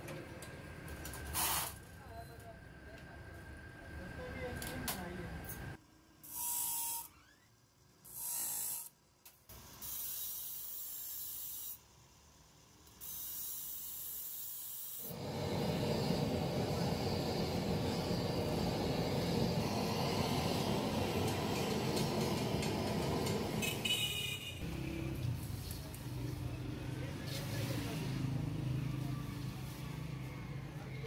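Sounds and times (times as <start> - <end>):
grinding wheel cutting steel: 13.0 - 24.2
steady rushing noise: 15.1 - 23.8.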